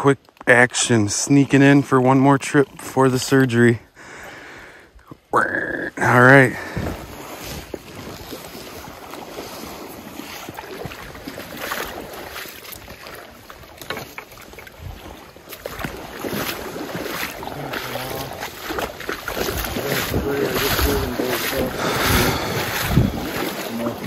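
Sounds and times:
river current rushing: 6.4s - 24.0s
legs wading splashing water: 6.6s - 24.0s.

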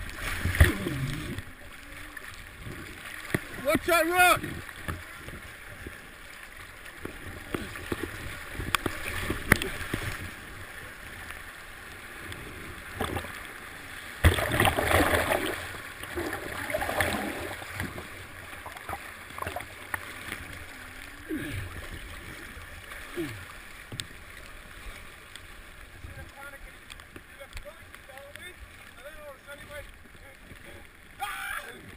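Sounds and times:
water slapping: 0.0s - 31.9s
whitewater rushing and splashing: 0.0s - 31.9s
loud splash: 14.2s - 18.1s.

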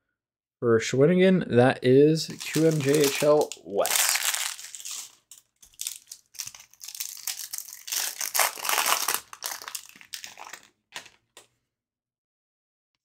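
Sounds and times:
foil wrapper crinkling: 2.3s - 11.4s.

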